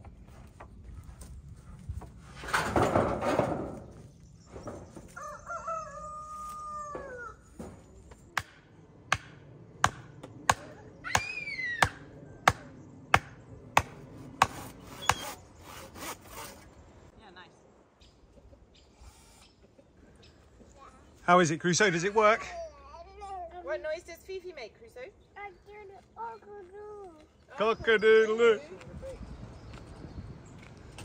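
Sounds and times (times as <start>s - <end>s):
rooster crowing: 5.1s - 7.6s
sharp knocks: 8.4s - 10.6s.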